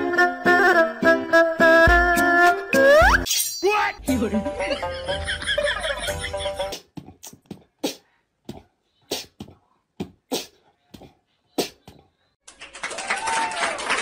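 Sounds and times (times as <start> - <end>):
music: 0.0 - 3.3, 4.0 - 6.8.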